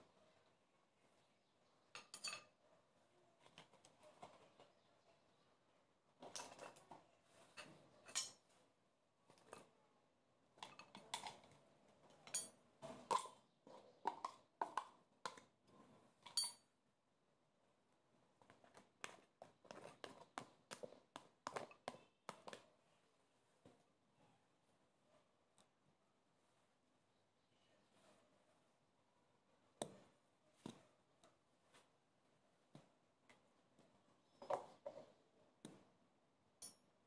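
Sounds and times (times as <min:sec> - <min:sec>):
spoon tapping and scraping metal: 0:02.0 - 0:02.5, 0:06.2 - 0:06.8, 0:07.5 - 0:08.4, 0:10.6 - 0:11.6, 0:12.2 - 0:15.5, 0:16.2 - 0:16.7, 0:18.5 - 0:22.6.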